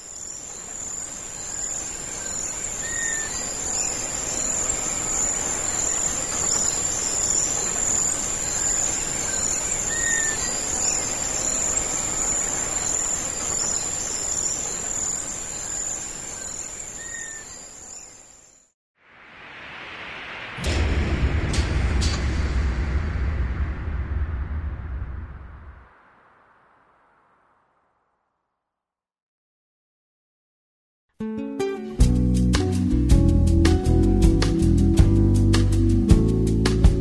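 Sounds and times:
crickets trilling: 0.0 - 18.6.

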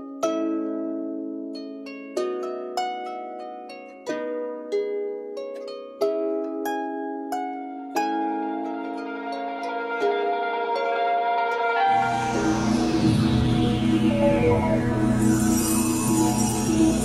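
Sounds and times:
plucked string chords: 7.9 - 17.0.

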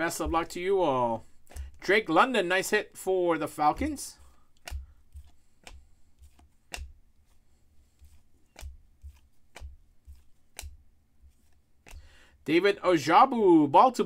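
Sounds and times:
cards clicking and snapping: 1.3 - 1.9, 3.5 - 12.2.

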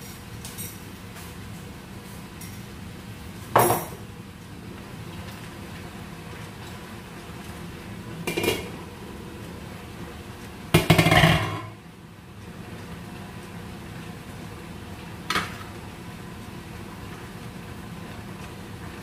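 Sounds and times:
cookware clinking: 3.6 - 4.0
glass lid clattering on worktop: 10.8 - 11.7.

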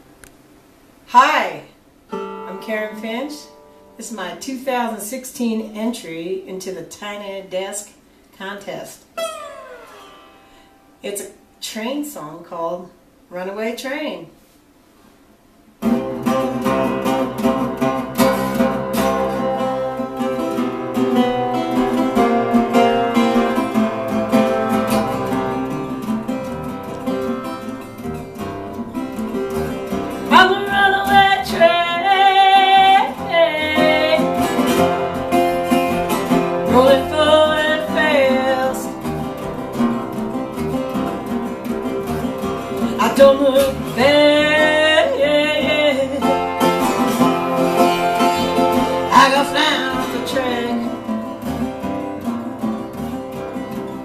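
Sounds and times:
resonator guitar playing blues: 2.1 - 4.4, 9.2 - 11.5, 15.8 - 54.0
woman singing: 30.3 - 35.3, 36.6 - 39.0, 42.8 - 46.6, 48.8 - 51.1.

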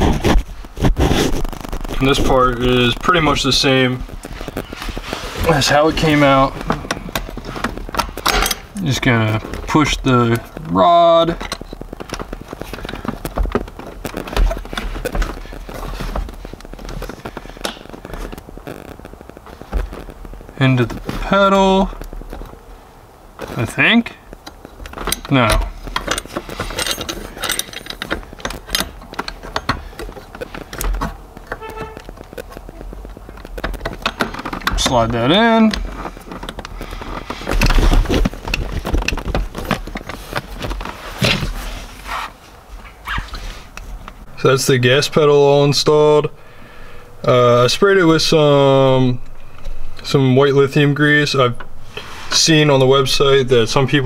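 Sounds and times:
metal parts scraping carpet: 0.0 - 18.9, 25.0 - 32.9, 33.5 - 44.0, 51.8 - 53.2
hands clicking and rustling: 0.0 - 44.3
metal parts clicking and knocking: 24.4 - 32.2.

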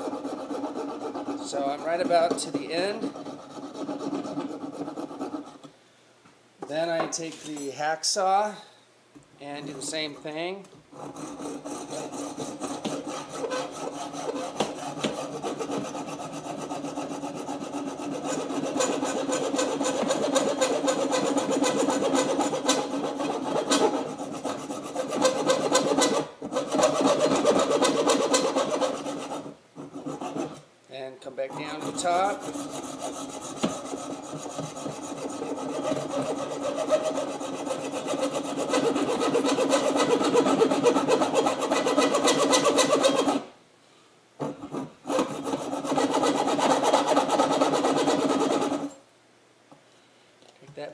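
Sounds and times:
hacksaw sawing wood and brass: 0.0 - 5.5, 11.0 - 30.6, 31.5 - 43.4, 44.7 - 49.0.

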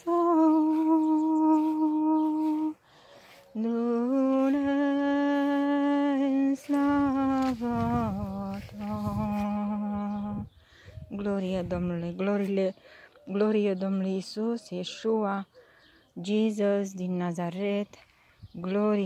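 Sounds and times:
woman humming: 0.0 - 2.8, 3.5 - 10.5.

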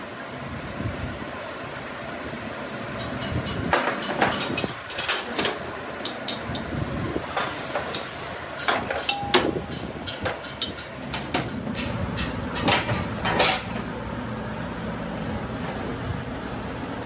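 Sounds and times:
metal wrenches clinking on metal: 3.0 - 6.6, 7.4 - 13.8
small steel parts rattling: 3.0 - 6.6, 7.4 - 13.8
low steady hum: 4.3 - 17.0.

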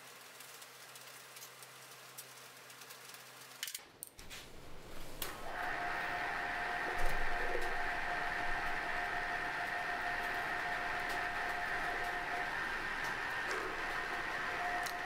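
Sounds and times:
milling machine spindle whining: 4.2 - 15.0.

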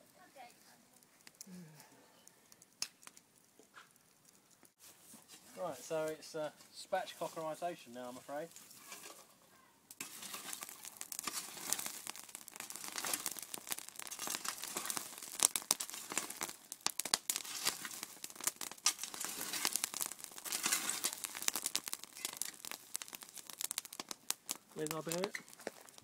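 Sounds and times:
embers crackling: 0.0 - 26.0
spade shovelling embers: 7.0 - 9.4, 10.0 - 26.0.

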